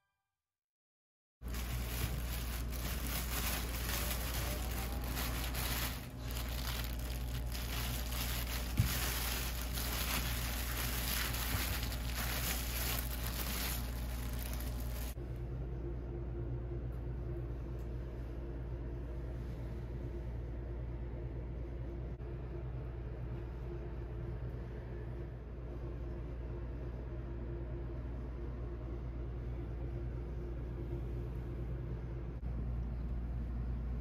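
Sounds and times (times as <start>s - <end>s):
plastic bag crinkling: 1.4s - 15.2s
steady low hum: 1.4s - 34.0s.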